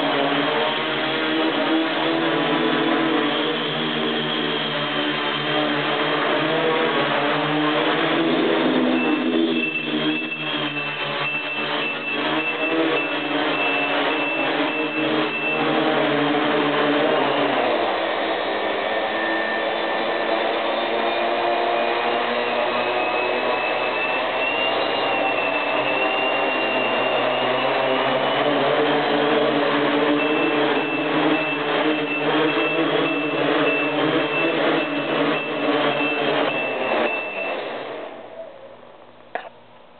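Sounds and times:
drone motors and propellers whirring: 0.0s - 38.5s
rapid high beeping: 8.2s - 17.6s, 22.5s - 38.1s.

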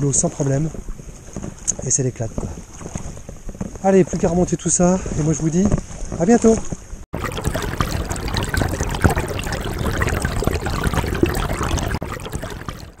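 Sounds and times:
river water rippling over stones: 7.1s - 13.0s.

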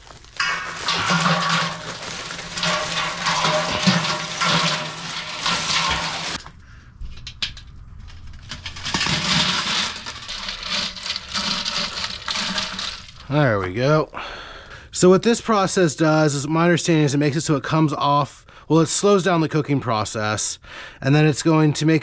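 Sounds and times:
ice cubes clattering into water: 0.0s - 6.5s, 8.4s - 13.6s
water sloshing: 0.0s - 6.5s.

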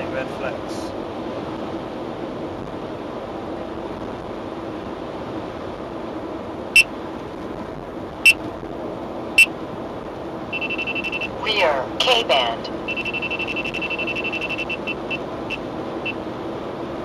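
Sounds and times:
car road and engine noise: 0.0s - 17.0s
radar detector high beeps: 10.5s - 11.4s, 12.8s - 16.2s.

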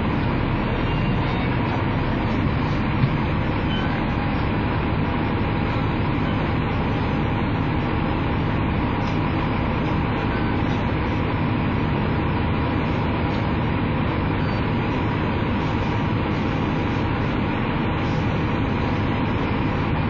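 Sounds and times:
diesel bus engine idling: 0.0s - 20.0s.

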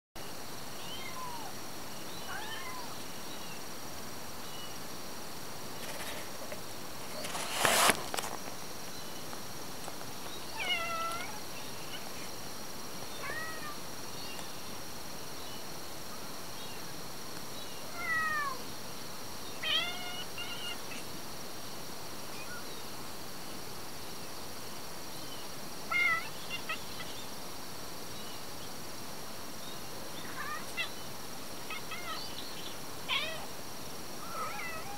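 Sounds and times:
kittens meowing: 0.8s - 1.6s, 2.2s - 3.0s, 10.5s - 12.1s, 13.1s - 13.8s, 17.9s - 18.6s, 19.6s - 21.0s, 25.9s - 27.1s, 30.2s - 30.9s, 31.7s - 32.2s, 33.1s - 33.5s, 34.2s - 34.9s
loud rustle: 5.8s - 8.6s.

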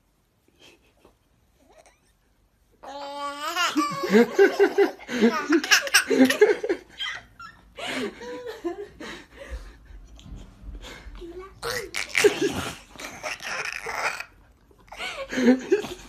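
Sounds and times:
baby laughing: 2.8s - 7.2s, 11.6s - 15.0s.

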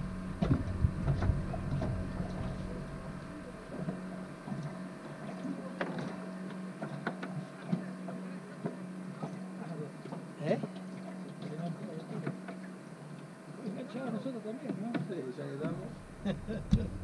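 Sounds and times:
boat motors humming: 0.0s - 17.0s
knocks in boat: 0.3s - 2.8s, 3.8s - 10.8s, 14.0s - 17.0s.

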